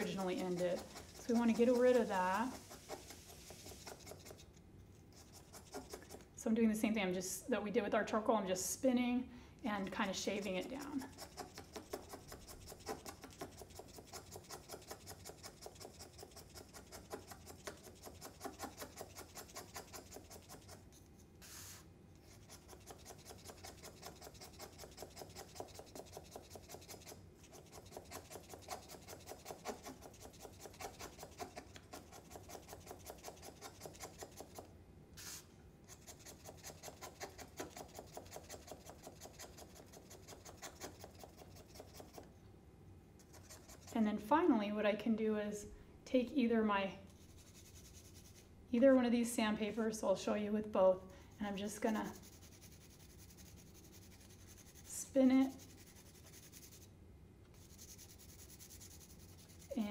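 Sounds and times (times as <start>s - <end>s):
razor blade scraping paper: 0.0s - 4.5s, 5.1s - 6.2s, 10.2s - 42.3s, 43.2s - 44.0s, 51.8s - 56.9s, 57.6s - 59.9s.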